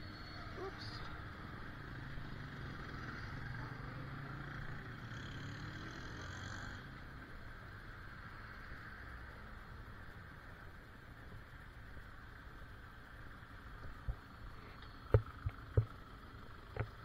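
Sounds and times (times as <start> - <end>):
vehicle engines rumbling: 0.0 - 17.0.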